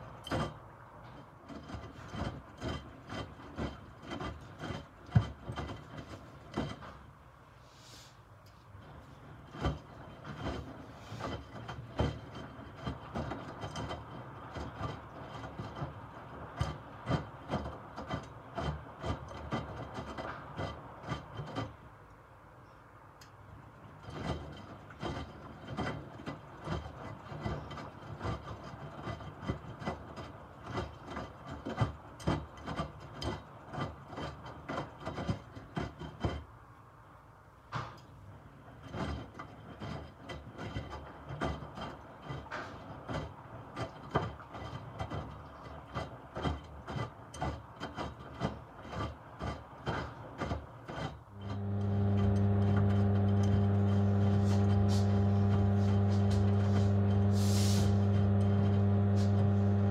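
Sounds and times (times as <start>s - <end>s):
washing machine drum tumbling: 38.6s - 59.9s.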